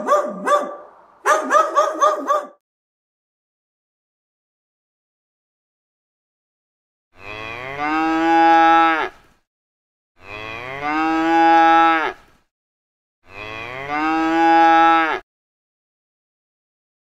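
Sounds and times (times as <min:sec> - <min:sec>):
cow mooing: 0:07.2 - 0:09.2, 0:10.2 - 0:12.2, 0:13.2 - 0:15.2.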